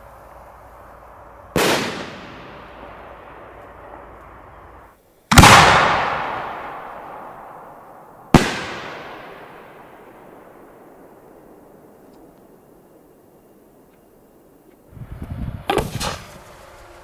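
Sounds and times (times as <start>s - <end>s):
firework lift charge boom: 0.0s - 4.5s, 15.0s - 17.0s
firework shell bursting bang: 15.7s - 16.5s.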